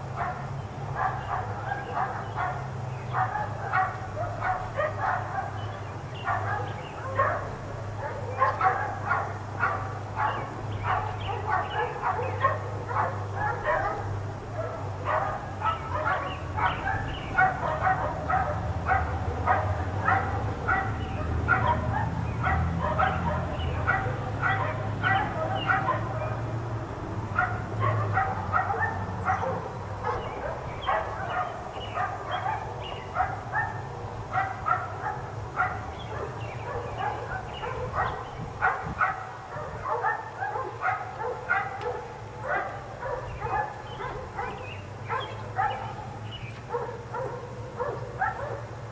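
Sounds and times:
dogs barking rapidly: 0.0 - 48.9.

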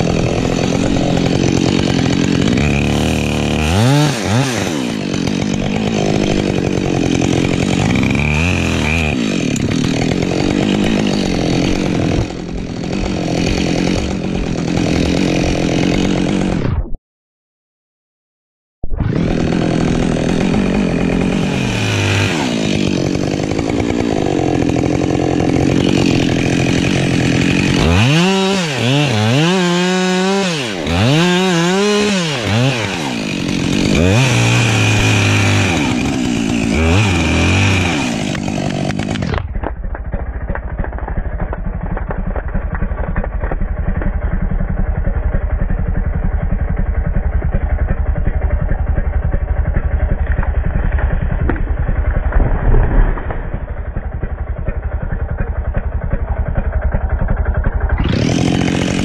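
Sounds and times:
chainsaw revving and cutting wood: 0.0 - 16.9, 19.0 - 59.0
dull rumble with rapid ticking: 38.4 - 59.0.

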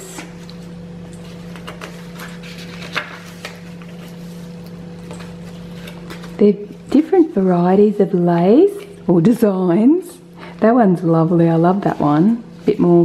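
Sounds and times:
low background hum: 0.0 - 13.0
paper rustling: 1.2 - 6.4.

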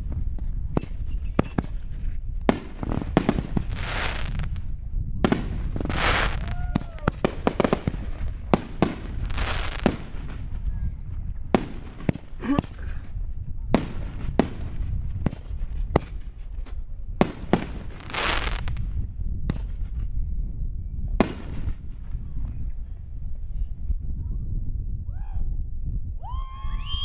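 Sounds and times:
fireworks bangs: 5.2 - 10.7, 17.2 - 18.9
fireworks hissing: 5.8 - 10.0, 18.0 - 18.8.

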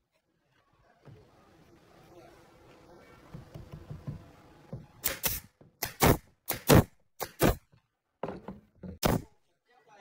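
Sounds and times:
nail gun firing: 5.0 - 7.6.

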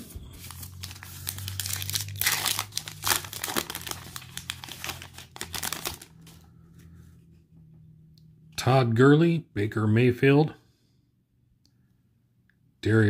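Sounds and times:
foil wrapper tearing and crinkling: 0.4 - 6.4.

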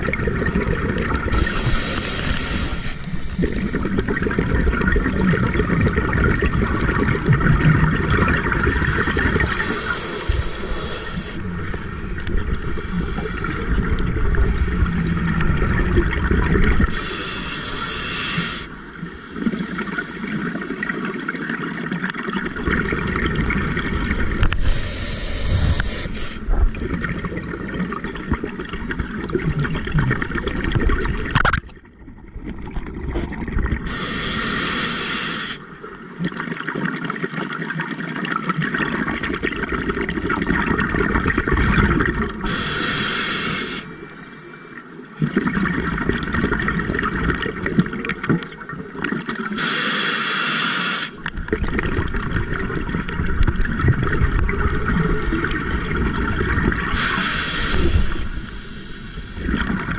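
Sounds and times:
exhaled bubbles underwater: 0.0 - 44.2, 44.8 - 49.8, 51.1 - 59.9
regulator hiss on inhale: 1.3 - 3.4, 8.6 - 11.5, 12.5 - 13.8, 16.8 - 18.8, 24.5 - 26.6, 33.9 - 35.7, 42.4 - 44.8, 49.6 - 51.2, 56.9 - 59.7.

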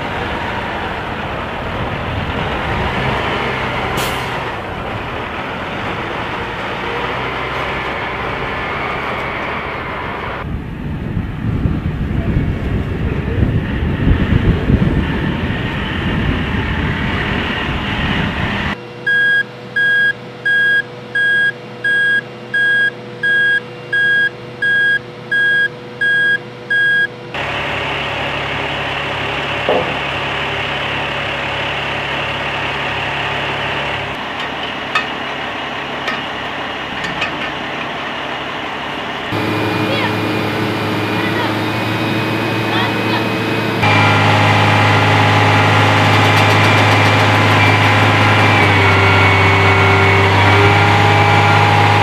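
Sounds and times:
truck engine running: 0.0 - 52.0
truck warning beeper: 19.0 - 27.2.

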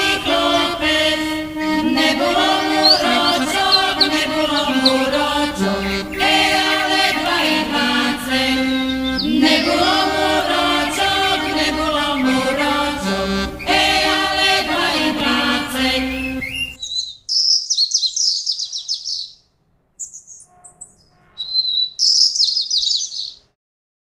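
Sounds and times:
group singing folk song: 0.0 - 16.8
songbird twittering: 2.6 - 7.4, 8.6 - 10.0, 16.1 - 19.4, 20.0 - 23.4.

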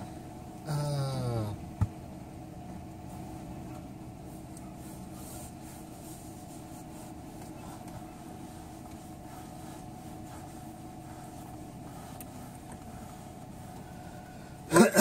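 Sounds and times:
vehicle engine hum inside cabin: 0.0 - 15.0
faint rubbing and rustling: 4.2 - 14.3.

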